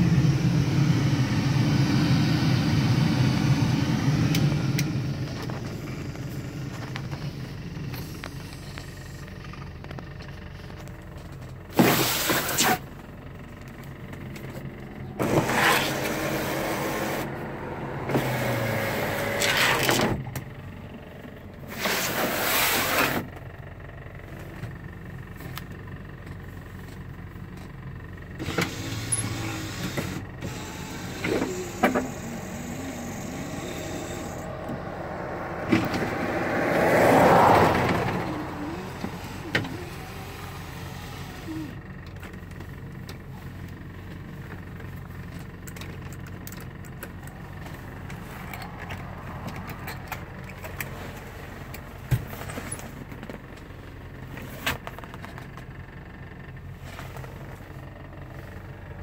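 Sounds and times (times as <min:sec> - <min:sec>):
electric motors running: 0:14.4 - 0:20.2, 0:28.3 - 0:41.8.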